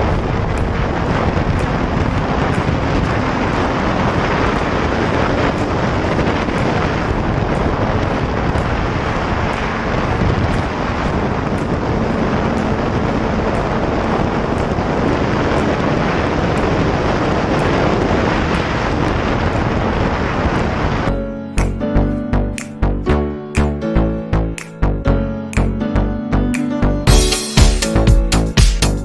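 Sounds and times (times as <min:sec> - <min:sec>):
wind rushing on microphone: 0:00.0 - 0:23.0.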